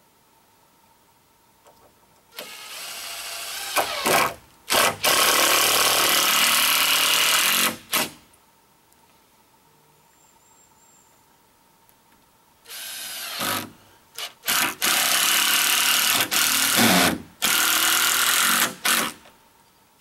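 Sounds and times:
power drill running in bursts: 2.4 - 8.0.

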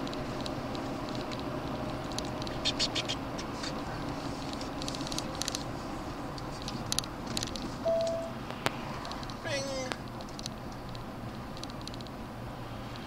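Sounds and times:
road and engine noise in truck: 0.0 - 13.0.

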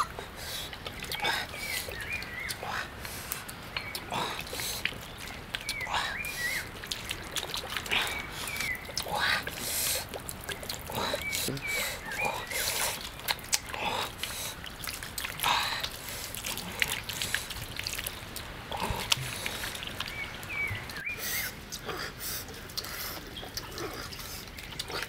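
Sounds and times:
water trickling and splashing: 0.0 - 25.0
wood fire crackling: 12.9 - 21.8.

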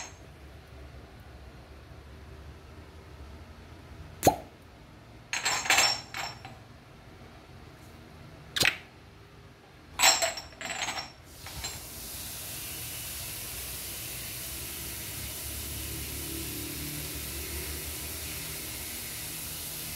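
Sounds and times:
glass cups clinking: 5.4 - 6.6, 10.0 - 11.8
steady hiss: 11.2 - 19.9.

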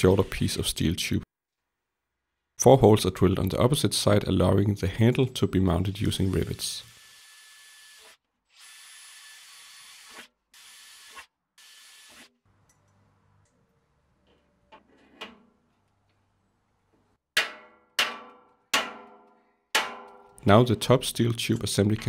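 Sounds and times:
cordless drill whining: 6.2 - 12.3.

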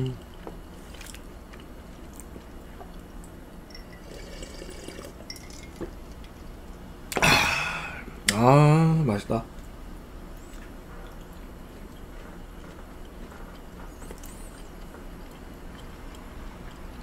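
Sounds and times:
breathy exhale: 7.2 - 8.1.

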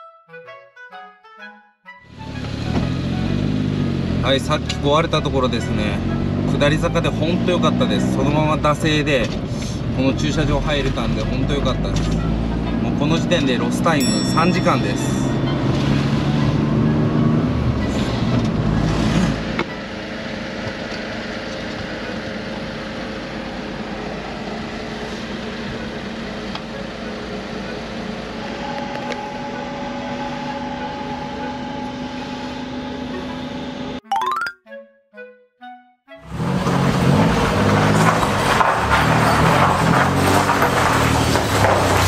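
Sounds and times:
short notes: 0.0 - 3.6, 14.0 - 16.2, 34.0 - 36.2
car engine and road noise: 2.0 - 34.0, 36.2 - 42.0
steady hum inside parked car: 19.6 - 34.0.

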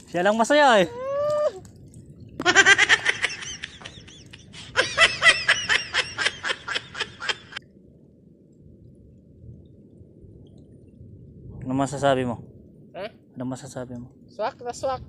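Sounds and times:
person laughing: 2.4 - 7.6.

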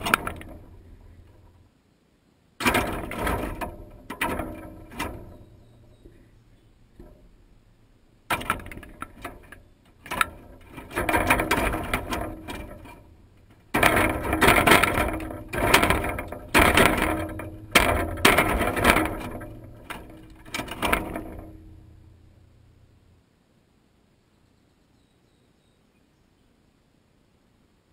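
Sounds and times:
metal feeder clattering and rattling: 0.0 - 1.6, 2.6 - 7.6, 8.3 - 22.2.

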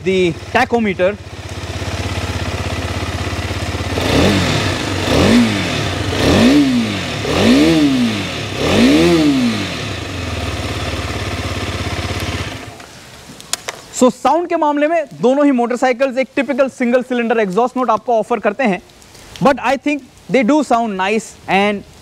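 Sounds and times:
motorcycle engine idling and revving: 0.0 - 12.9.

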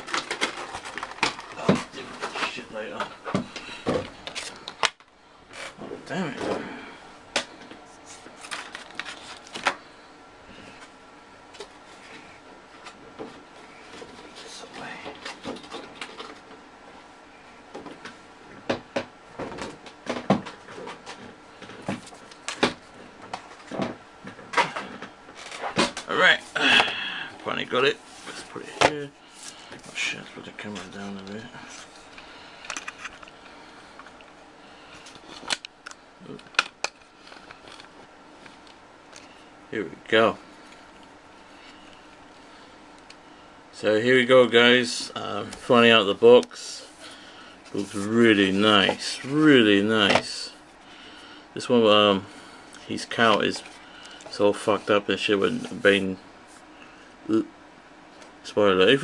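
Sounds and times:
packaging rustling: 0.0 - 2.6, 8.4 - 9.8.

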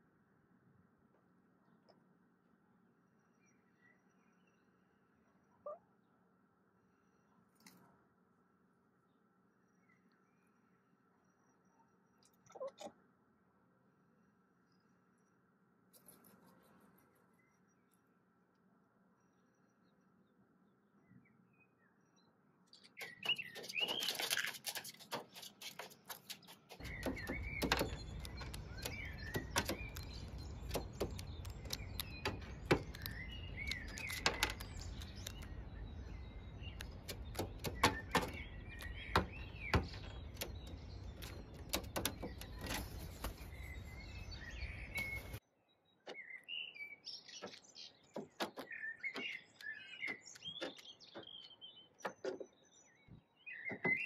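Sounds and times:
birds chirping: 9.0 - 13.2, 14.4 - 54.0
bird claws tapping on metal: 23.0 - 35.5, 36.7 - 43.4.

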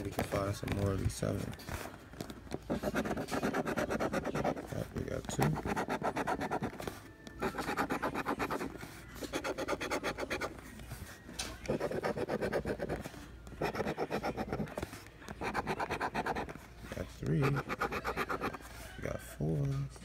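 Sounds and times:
metal tool scratching lottery ticket: 2.6 - 10.6, 11.7 - 16.6, 17.2 - 18.7.

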